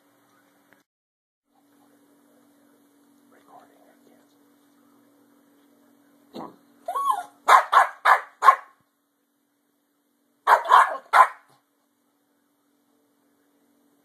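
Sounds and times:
small dog whining: 6.9 - 7.4
small dog barking: 6.9 - 8.8, 10.5 - 11.6.

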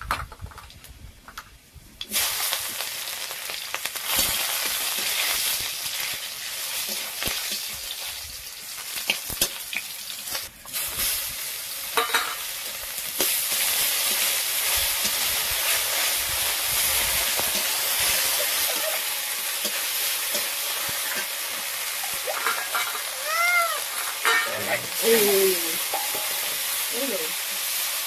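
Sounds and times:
food sizzling in hot oil: 2.0 - 28.0.

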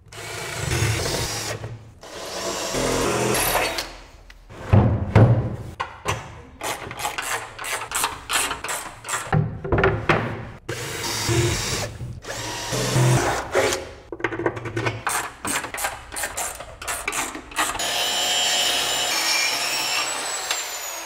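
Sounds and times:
sharp knocks and clatter: 7.0 - 10.6.

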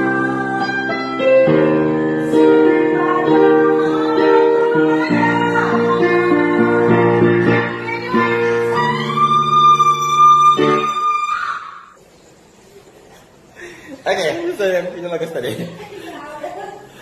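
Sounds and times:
woman singing: 0.0 - 11.6.

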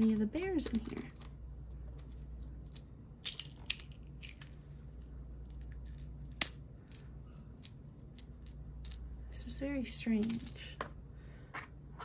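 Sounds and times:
plastic toy parts clicking and rattling: 0.0 - 4.6, 5.4 - 9.0, 10.2 - 10.9.

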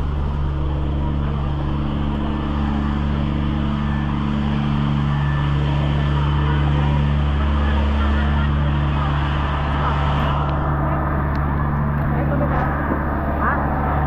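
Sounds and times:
engine humming steadily: 0.0 - 14.0.

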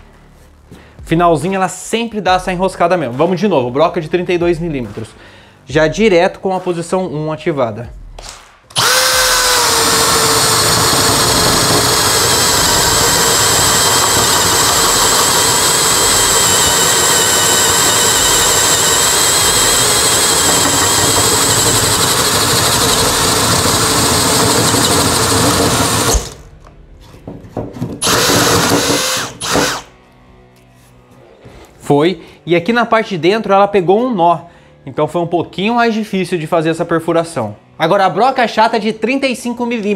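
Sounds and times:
cordless drill boring through wood: 8.7 - 26.4, 28.0 - 29.9.

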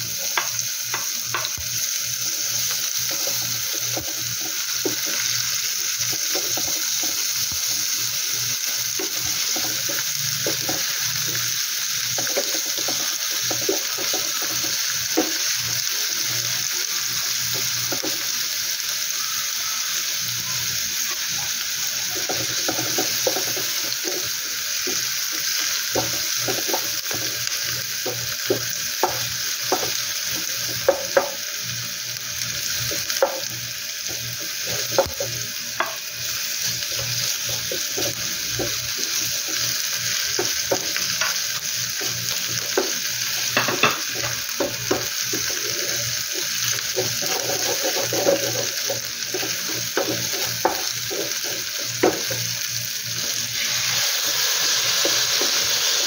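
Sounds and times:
onion and garlic sizzling in oil: 0.0 - 56.0
wooden spatula scraping pan: 46.9 - 51.6.

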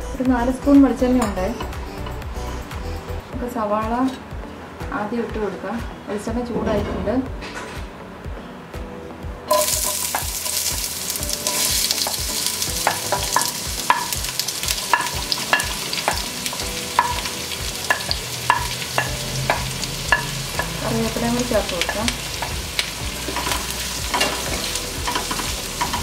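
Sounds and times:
onions sizzling in hot oil: 9.5 - 26.0.

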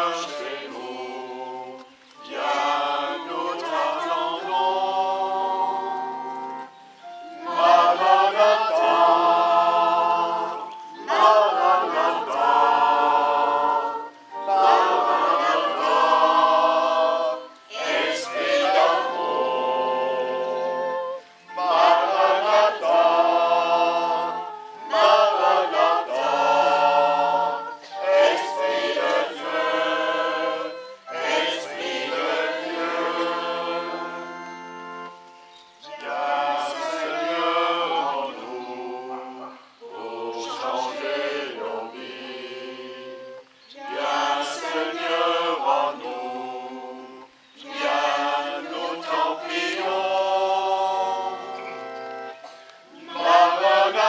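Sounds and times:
congregation singing a hymn: 0.0 - 54.0
electronic keyboard: 51.2 - 54.0.

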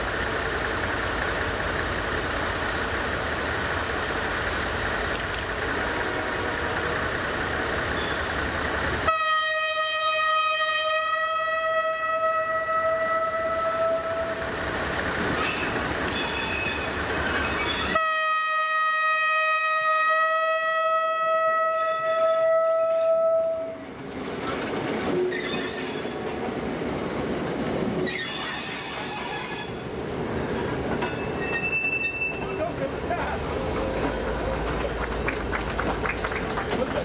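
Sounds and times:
locomotive engine noise: 0.0 - 9.1, 12.5 - 18.0, 22.1 - 37.0
locomotive horn blast: 9.0 - 14.5, 17.9 - 23.9
wheels clattering over rail joints: 27.8 - 37.0.

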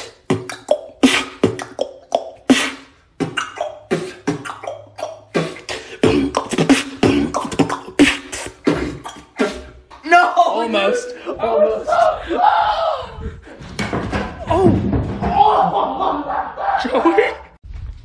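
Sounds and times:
vocal beatboxing: 0.0 - 10.0.

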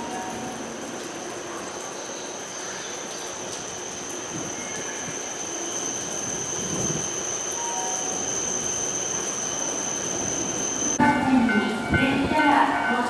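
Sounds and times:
electric train rolling in: 3.4 - 13.0.

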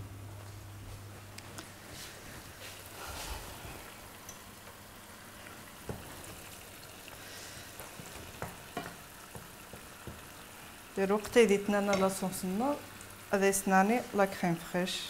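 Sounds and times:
mushrooms sizzling in a frying pan: 2.7 - 15.0
wooden spoon knocking on pan: 5.8 - 6.4, 7.8 - 10.6, 11.8 - 12.4.

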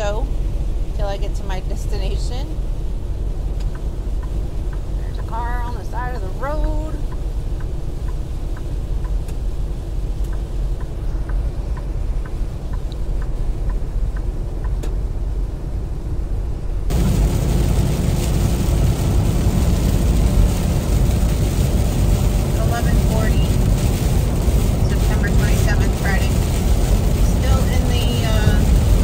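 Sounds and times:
truck engine and tyres rumbling: 0.0 - 29.0
faint ticking: 3.6 - 15.0
heavy rain and road spray: 16.9 - 29.0.

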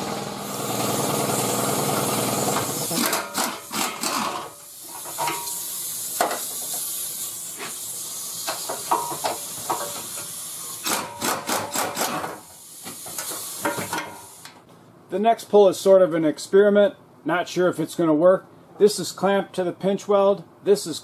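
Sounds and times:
pneumatic impact wrench bursts: 0.0 - 14.6
compressed air hiss: 4.6 - 10.8, 12.4 - 14.4.

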